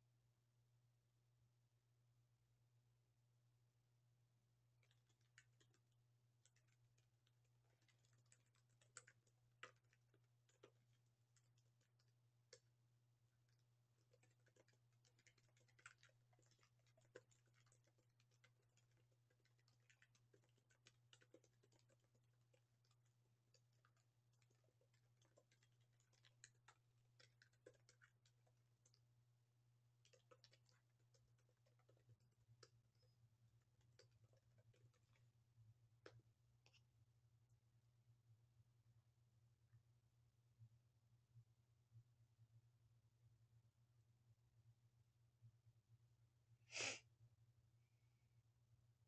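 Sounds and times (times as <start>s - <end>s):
computer keyboard typing: 4.8s - 12.7s, 13.5s - 29.0s, 30.0s - 32.1s.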